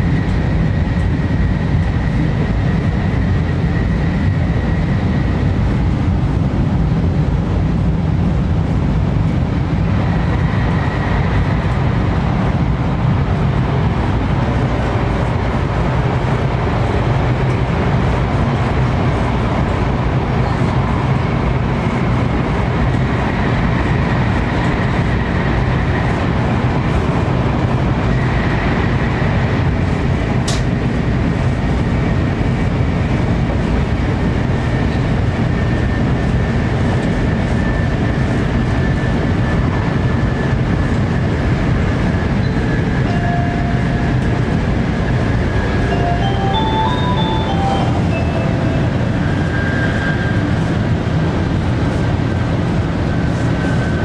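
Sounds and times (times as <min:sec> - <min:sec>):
train running rumble: 0:00.0 - 0:54.0.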